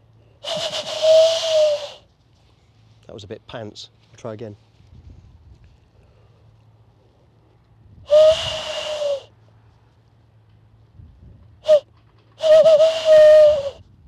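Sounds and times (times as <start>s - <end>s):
hand-blown owl hoots: 0.4s - 2.1s, 8.1s - 9.3s, 11.6s - 13.8s.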